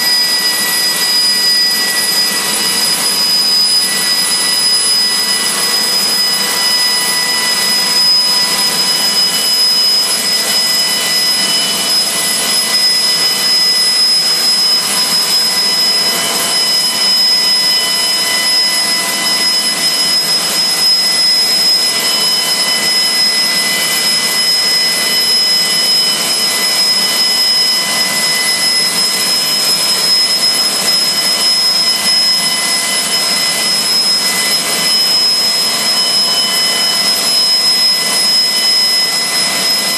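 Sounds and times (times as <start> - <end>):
turbine engine whine and hiss: 0.0 - 39.9.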